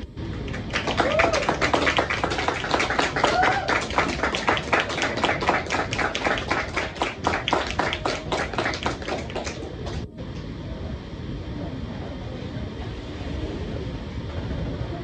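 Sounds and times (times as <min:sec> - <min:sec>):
audience applauding: 0:00.0 - 0:10.1
person cheering: 0:00.8 - 0:02.0, 0:03.0 - 0:04.1.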